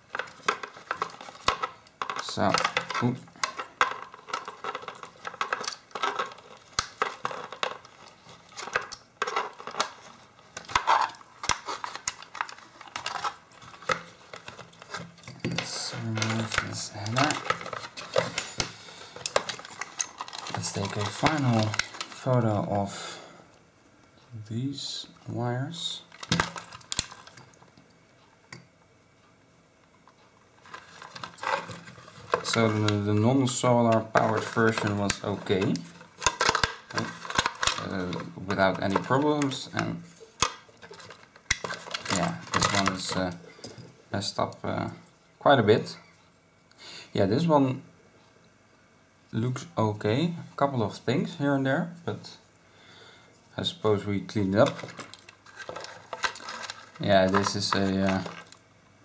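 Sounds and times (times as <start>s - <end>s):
plastic parts clicking and rattling: 0.0s - 22.8s, 26.1s - 27.8s, 30.0s - 43.9s, 54.3s - 58.6s
metal tools clinking and rattling: 11.9s - 22.2s.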